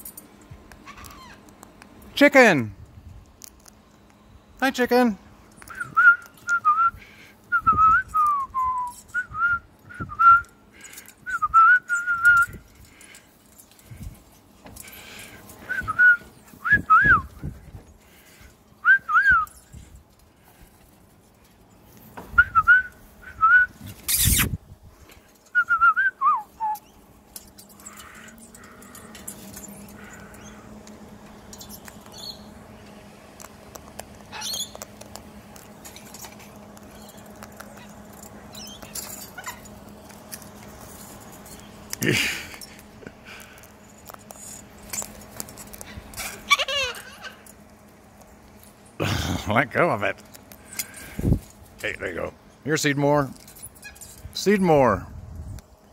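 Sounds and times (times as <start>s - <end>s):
faint steady hum: 0.0s - 55.9s.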